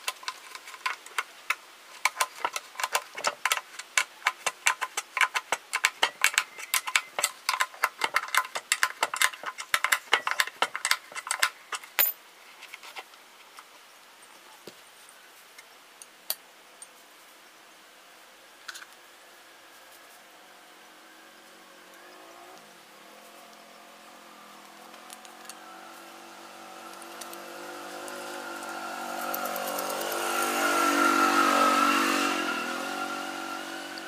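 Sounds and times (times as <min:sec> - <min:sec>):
metallic clicking of bolt tightening: 0:00.1 - 0:12.2.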